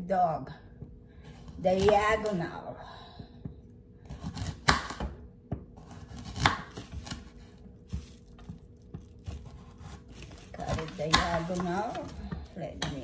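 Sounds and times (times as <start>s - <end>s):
knife slicing carrot on board: 5.8s - 8.6s.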